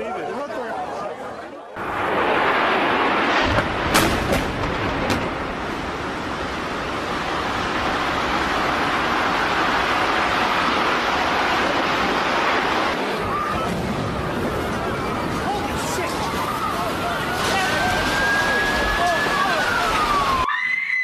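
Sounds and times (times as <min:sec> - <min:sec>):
sharp cracks: 0:01.8 - 0:13.7
explosion roar: 0:01.8 - 0:20.5.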